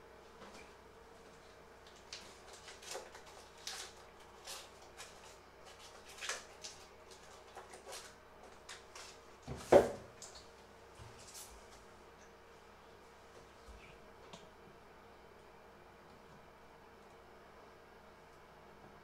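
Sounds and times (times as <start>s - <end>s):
wrapper crackling: 1.9s - 9.1s.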